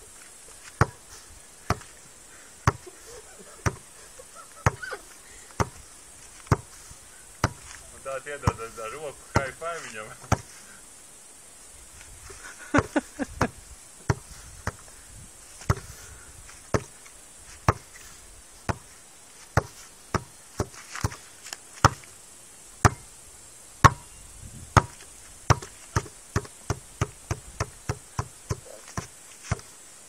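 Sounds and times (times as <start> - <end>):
basketball bouncing on hard surface: 0.8 - 1.0, 3.6 - 3.8, 5.6 - 5.8, 6.5 - 6.7, 7.4 - 7.7, 10.3 - 10.5, 14.1 - 14.8, 15.7 - 15.9, 22.8 - 23.0, 23.8 - 24.1, 24.8 - 29.6.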